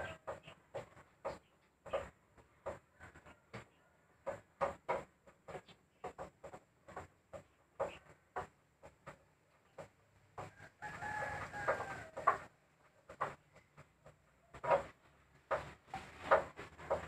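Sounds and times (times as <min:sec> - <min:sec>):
wooden cabinet doors knocking: 0:00.2 - 0:12.5, 0:13.1 - 0:17.0
rooster crowing: 0:10.5 - 0:12.4.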